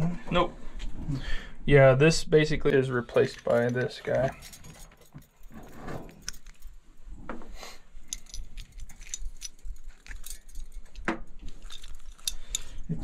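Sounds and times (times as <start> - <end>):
metal valve jingling and clicking: 3.1 - 6.8, 8.0 - 12.8.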